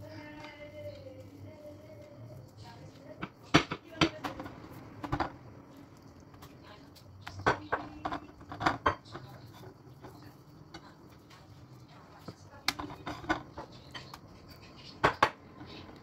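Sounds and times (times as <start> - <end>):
low room background: 0.0 - 16.0
dishes and cutlery clinking: 7.2 - 11.6, 12.2 - 16.0.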